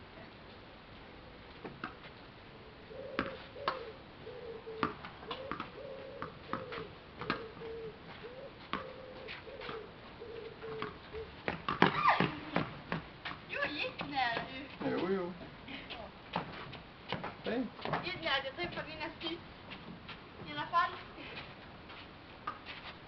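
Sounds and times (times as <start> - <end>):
ball struck by rackets: 3.2 - 3.8, 4.8 - 7.5, 10.7 - 13.0.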